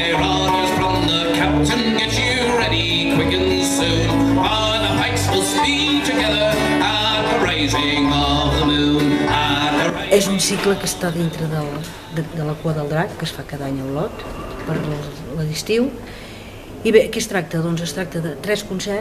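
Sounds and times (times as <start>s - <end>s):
man singing: 0.0s - 12.4s
banjo and acoustic guitars: 0.0s - 13.5s.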